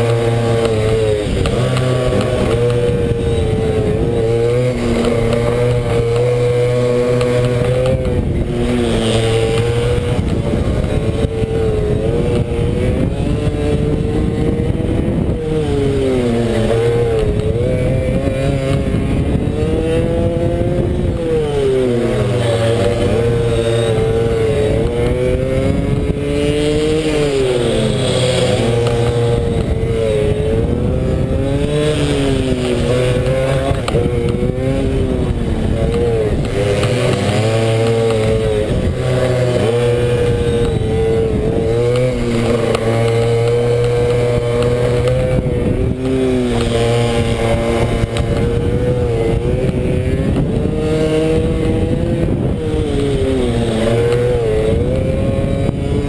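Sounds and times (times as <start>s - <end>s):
motorbike engine revving: 0.0s - 56.0s.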